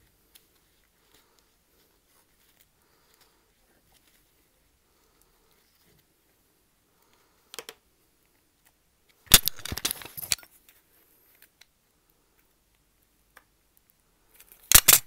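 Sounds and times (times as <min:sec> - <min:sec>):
gloved hands rustling: 0:00.0 - 0:06.4, 0:08.3 - 0:11.6
cutting tool clicking: 0:14.7 - 0:15.0.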